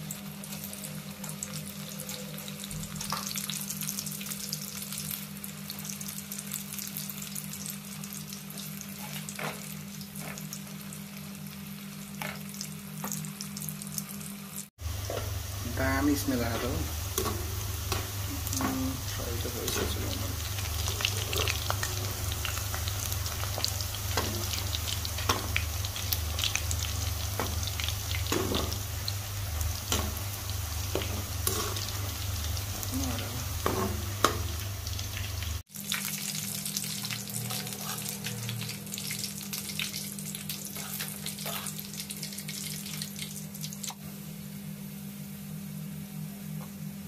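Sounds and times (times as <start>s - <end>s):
sausages sizzling in oil: 0.0s - 44.0s
oil crackling and popping: 39.0s - 44.0s.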